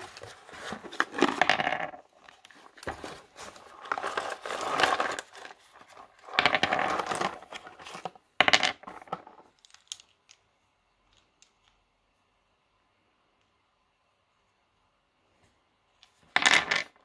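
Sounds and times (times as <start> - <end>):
candy pieces clicking together: 9.5 - 10.5.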